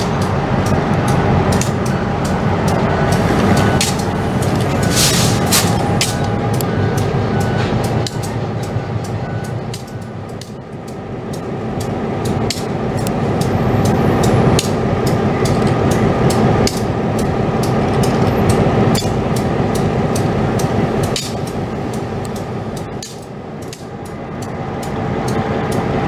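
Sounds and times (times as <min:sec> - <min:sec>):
locomotive engine idling: 0:00.0 - 0:26.0.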